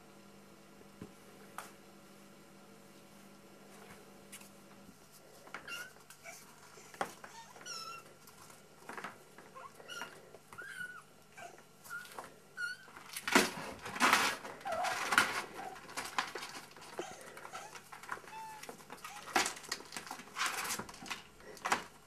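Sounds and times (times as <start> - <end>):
kittens mewing: 9.5 - 13.0.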